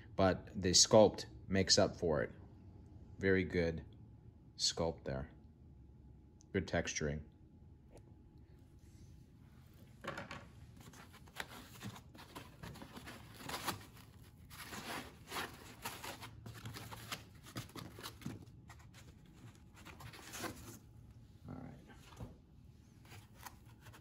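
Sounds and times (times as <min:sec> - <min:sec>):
packaging rustling and scraping: 0:10.7 - 0:20.9.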